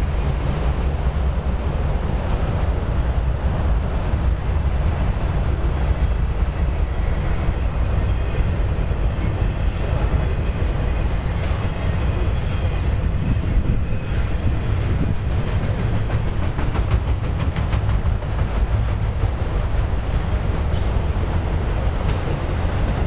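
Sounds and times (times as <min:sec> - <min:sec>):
rumble of train wheels on track: 0:00.0 - 0:23.0
wheels clicking over rail joints: 0:05.1 - 0:23.0.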